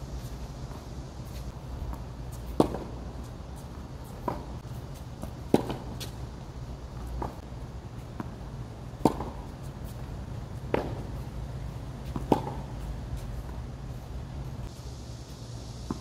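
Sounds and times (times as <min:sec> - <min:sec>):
steady low rumble: 0:00.0 - 0:16.0
ball bouncing: 0:01.9 - 0:03.0, 0:05.2 - 0:06.2, 0:09.0 - 0:09.5, 0:10.6 - 0:11.1, 0:12.1 - 0:12.8
tennis ball struck by racket: 0:02.4 - 0:03.1, 0:04.2 - 0:04.6, 0:05.2 - 0:06.2, 0:09.0 - 0:09.6, 0:10.6 - 0:11.1, 0:12.0 - 0:12.8.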